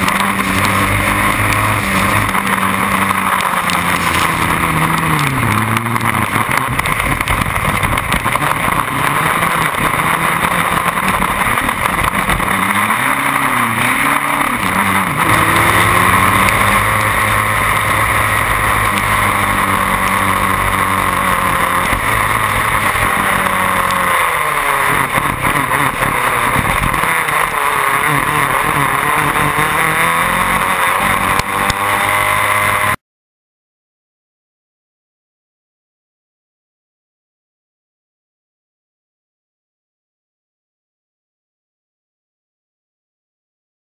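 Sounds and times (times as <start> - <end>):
racing car engine revving: 0.0 - 33.0.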